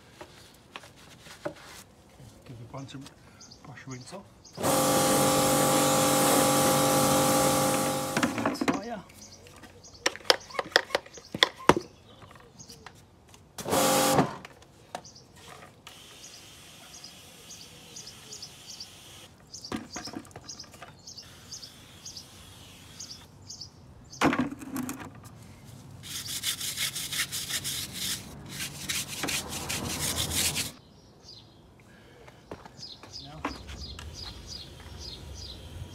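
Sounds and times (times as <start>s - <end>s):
pump sprayer rinsing: 4.6s - 8.4s, 13.7s - 14.3s.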